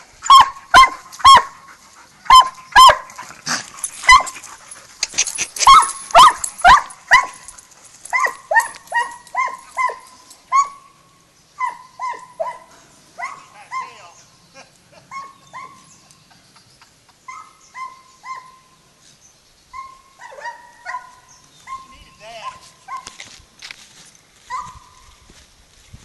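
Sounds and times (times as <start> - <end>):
dog barking: 0.3 - 1.6, 2.3 - 3.1, 4.1 - 4.4, 5.6 - 7.4, 8.1 - 10.8, 11.6 - 14.0, 15.1 - 15.8, 19.8 - 23.2, 24.5 - 24.9.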